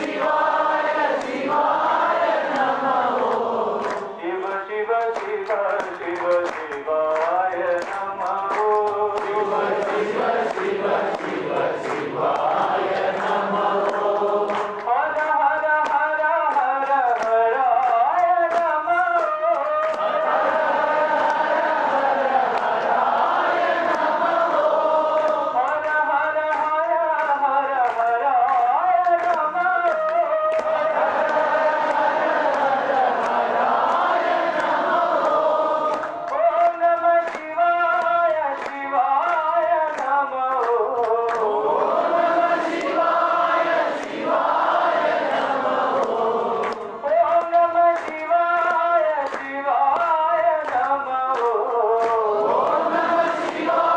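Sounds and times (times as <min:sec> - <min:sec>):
group singing devotional song: 0:00.0 - 0:53.9
percussion beat of sharp strikes: 0:07.8 - 0:20.3.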